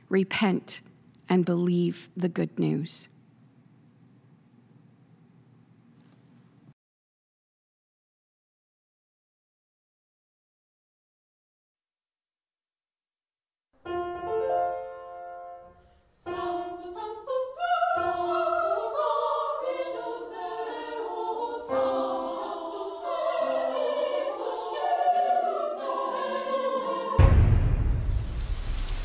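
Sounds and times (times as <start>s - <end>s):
choir singing with accompaniment: 16.2s - 28.7s.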